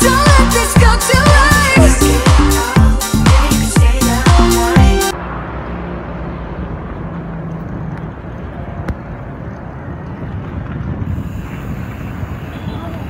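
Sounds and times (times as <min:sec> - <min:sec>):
road noise: 0:00.0 - 0:13.0
wind on microphone: 0:07.6 - 0:13.0.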